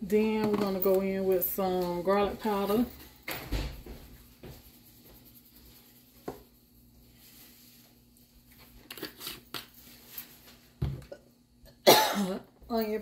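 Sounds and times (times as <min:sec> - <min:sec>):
faint soft rustling: 0:03.8 - 0:08.8
spice shaker shaking: 0:04.2 - 0:07.8.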